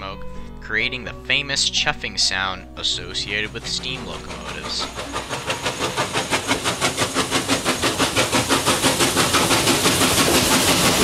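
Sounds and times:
steam locomotive exhaust chuffing: 0.3 - 11.0
rush and hiss of steam: 3.2 - 11.0.

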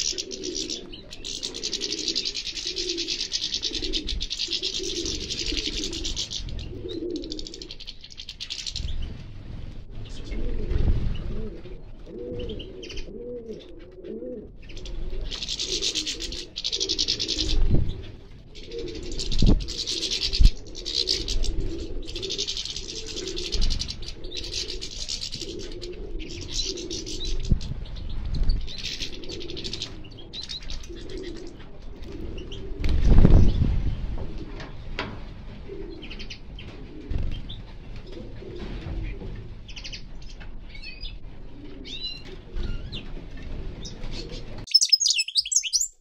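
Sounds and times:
finches twittering: 0.0 - 8.9, 44.7 - 46.0
pigeon cooing: 0.0 - 8.9, 10.1 - 27.8, 28.6 - 33.0, 35.6 - 39.3, 41.4 - 43.2, 43.8 - 46.0.

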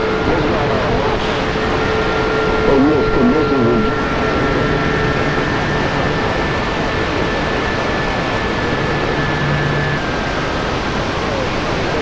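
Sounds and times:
radio static hiss: 2.6 - 4.0.

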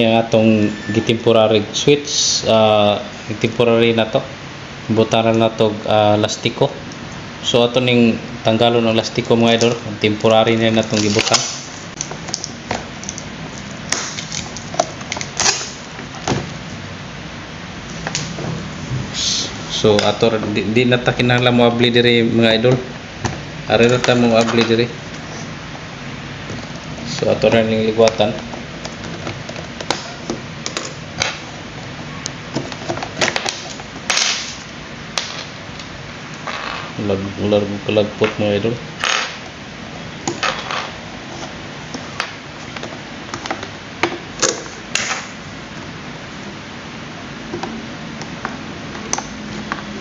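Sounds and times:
plastic wrapping crinkling: 10.4 - 15.8.

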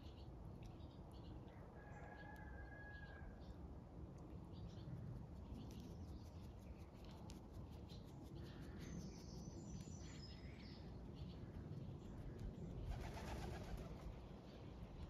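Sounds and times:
songbird chirping: 4.2 - 12.8.

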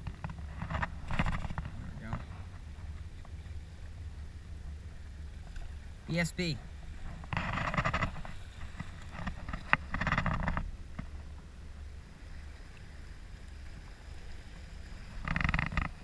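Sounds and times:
wind and water rumble: 0.0 - 16.0.

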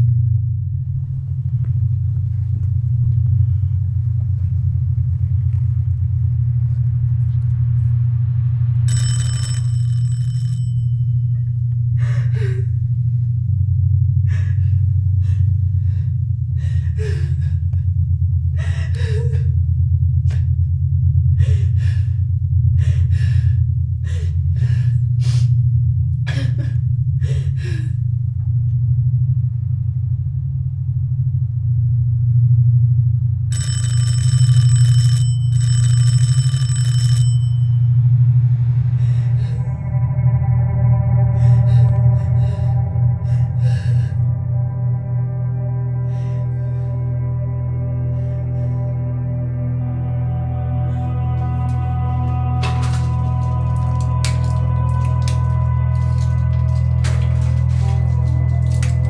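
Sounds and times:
deep rumbling drone: 0.0 - 36.2, 37.2 - 59.0
woman gasping and sobbing: 12.0 - 12.9, 14.3 - 17.8, 18.6 - 19.6, 21.4 - 25.6, 26.3 - 28.0, 41.2 - 44.4.

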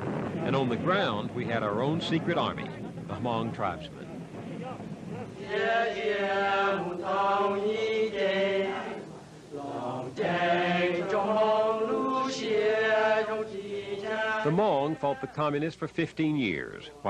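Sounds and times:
men chanting together: 4.5 - 15.3.

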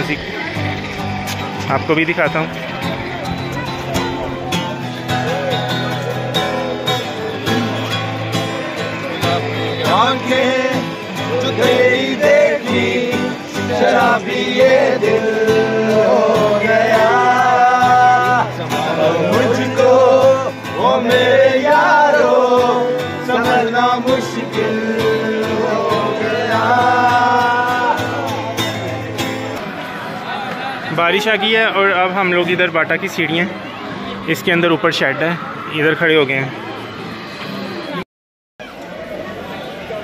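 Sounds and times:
acoustic guitar strumming: 0.0 - 35.6
men singing together: 9.3 - 28.8.

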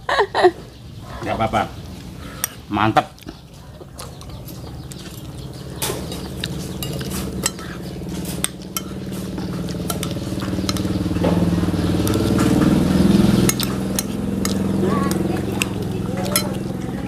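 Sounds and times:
low droning hum: 3.8 - 17.0
spoons clinking on plates: 4.9 - 12.6, 13.3 - 16.8.

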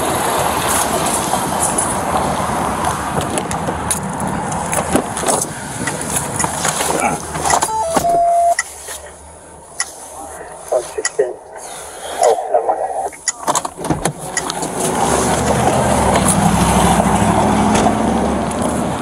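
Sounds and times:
road traffic noise: 0.0 - 19.0
two-note electronic beep: 7.6 - 8.7.

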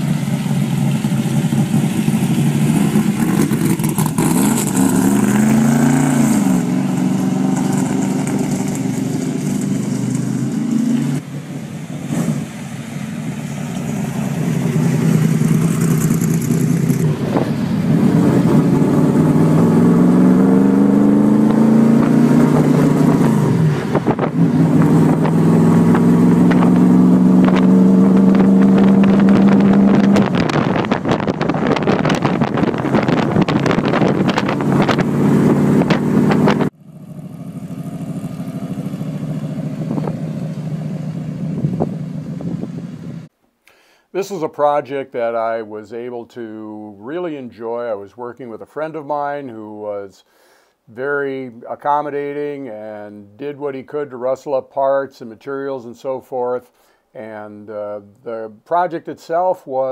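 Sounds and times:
car engine accelerating: 0.0 - 43.3.

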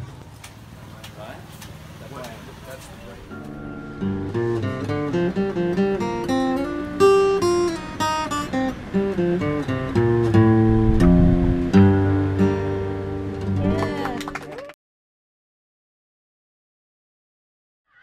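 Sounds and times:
acoustic guitar melody: 2.2 - 14.5.

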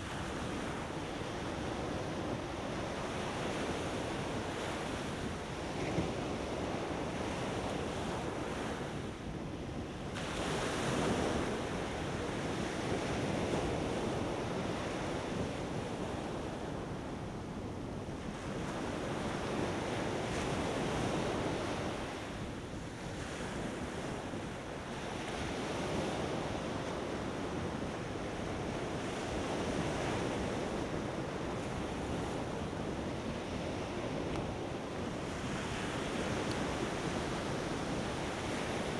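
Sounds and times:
ocean surf breaking on beach: 0.0 - 38.9
wind on microphone: 0.0 - 38.9.

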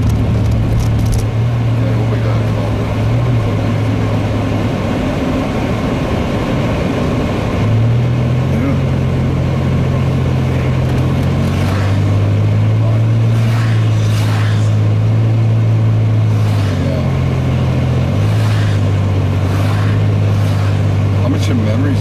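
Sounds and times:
car engine and tyres droning: 0.0 - 22.0
soft swishes: 13.2 - 14.9, 16.2 - 16.9, 18.1 - 21.0.

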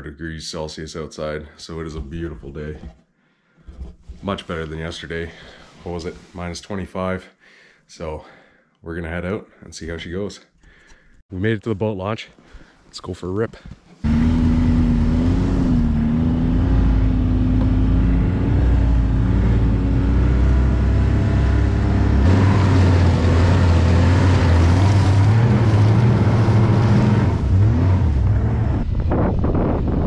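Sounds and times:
snowmobile engine running: 14.0 - 28.9.

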